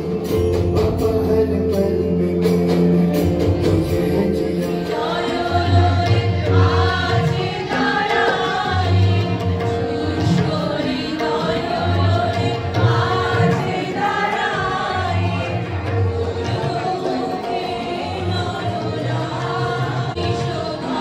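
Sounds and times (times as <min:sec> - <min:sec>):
harmonium: 0:00.0 - 0:21.0
tabla: 0:00.0 - 0:21.0
women singing together: 0:04.8 - 0:21.0.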